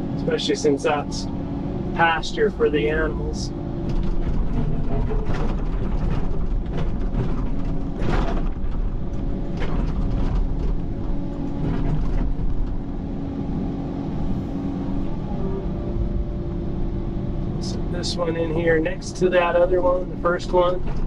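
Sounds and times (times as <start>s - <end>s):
excavator engine running: 0.0s - 21.0s.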